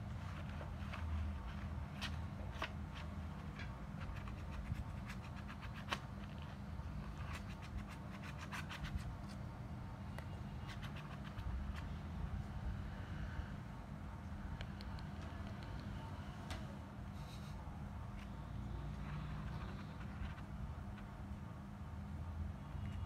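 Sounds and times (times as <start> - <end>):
kitten claws scratching fabric: 0.0 - 9.5, 10.4 - 12.2, 17.3 - 21.2
steady low hum: 0.0 - 23.0.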